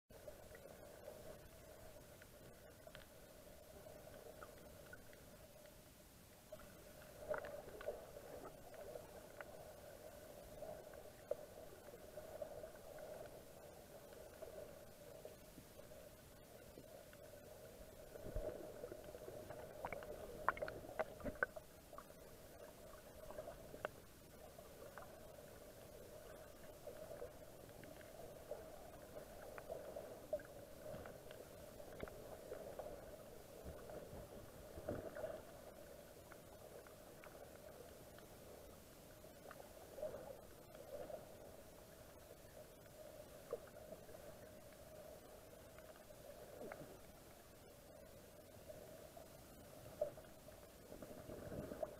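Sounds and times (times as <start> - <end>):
faint underwater hum: 0.1 - 51.9
underwater knocks and clicks: 19.7 - 21.6.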